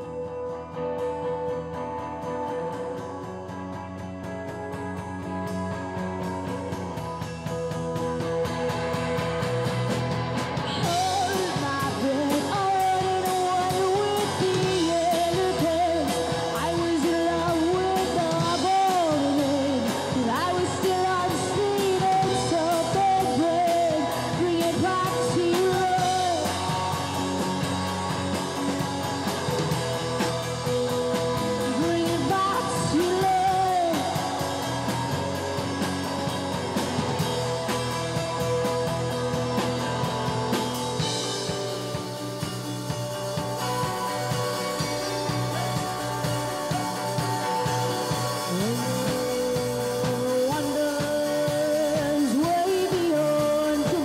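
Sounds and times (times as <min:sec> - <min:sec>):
rock band playing live: 0:00.0 - 0:54.0
person singing: 0:10.7 - 0:26.6, 0:31.6 - 0:34.9, 0:48.2 - 0:54.0.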